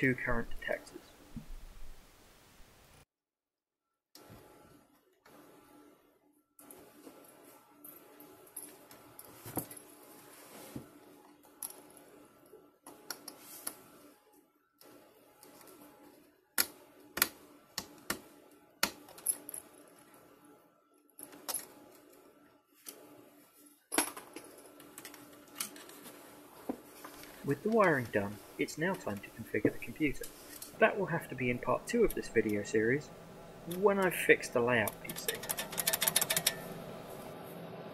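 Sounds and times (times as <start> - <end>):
faint steady hum: 24.1 - 37.9.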